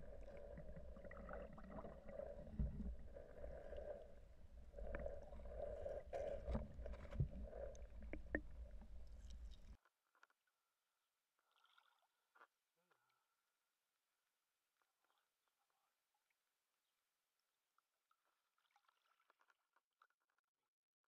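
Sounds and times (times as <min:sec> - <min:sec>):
underwater low rumble: 0:00.0 - 0:09.8.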